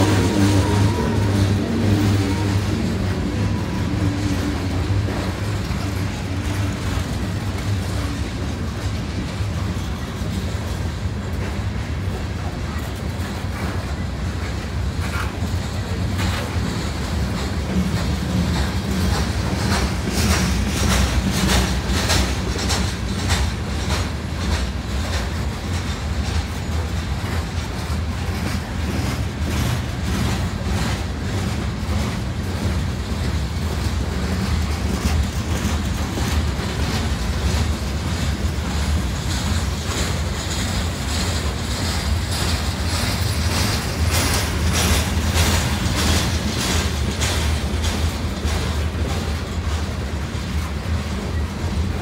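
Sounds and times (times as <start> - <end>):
freight train wheels rumbling: 0.0 - 52.0
wheels clacking on rail: 0.0 - 52.0.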